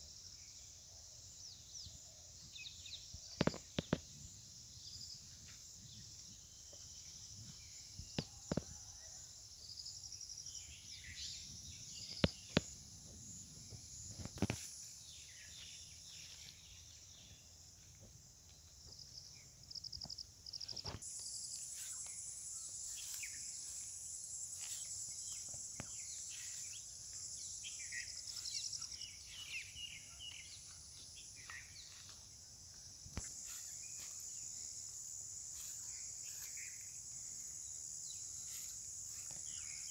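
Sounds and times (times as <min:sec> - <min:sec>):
high-pitched insect chorus: 0:00.0 - 0:39.9
bird chirps: 0:19.0 - 0:32.2.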